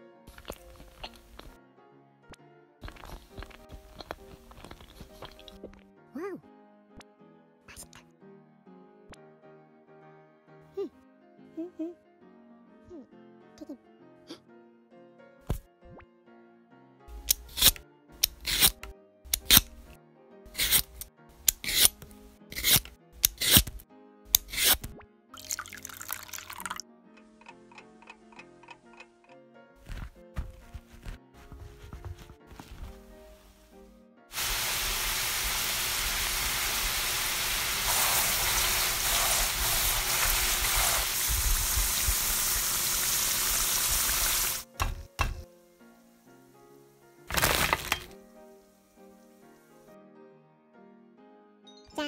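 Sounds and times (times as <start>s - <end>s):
light background music: 0.0s - 52.0s
vegetable peeler scraping: 17.1s - 19.8s, 20.5s - 24.9s
food deep-frying in oil: 34.3s - 44.7s, 47.3s - 48.1s.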